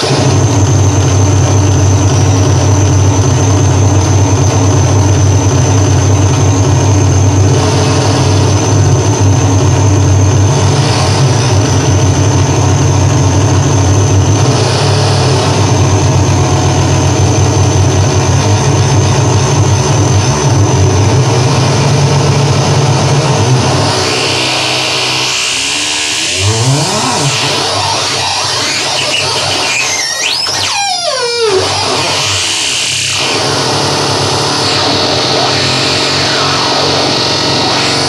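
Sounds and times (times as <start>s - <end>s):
heavy low rumble: 0.0s - 23.9s
harsh electronic noise: 0.0s - 38.0s
thin high whine: 10.8s - 38.0s.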